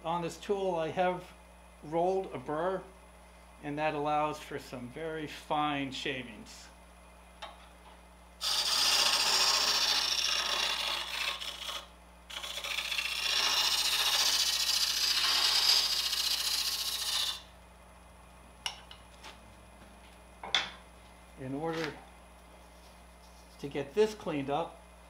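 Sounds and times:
scraper on spinning wood: 8.4 - 17.4.

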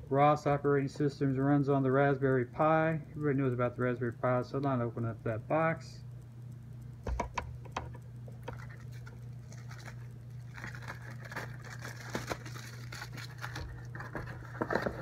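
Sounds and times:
low steady hum: 0.0 - 15.0
plastic bubble wrap crinkling: 7.8 - 15.0.

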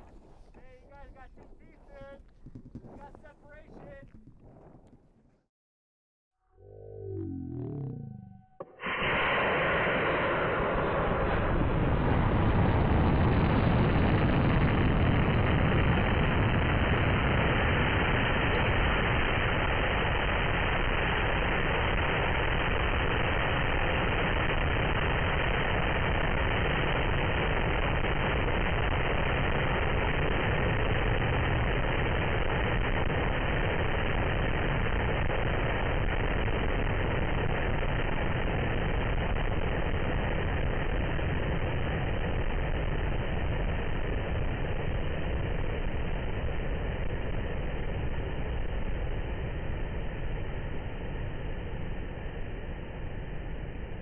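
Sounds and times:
wind rushing over microphone: 0.0 - 5.0, 8.6 - 54.0
rocket motor igniting: 7.6 - 50.0.

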